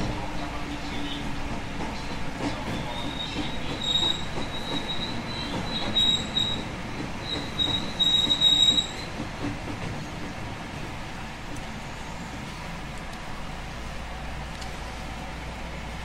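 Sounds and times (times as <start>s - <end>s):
train rumble: 0.0s - 16.0s
train wheels squealing: 2.6s - 9.2s.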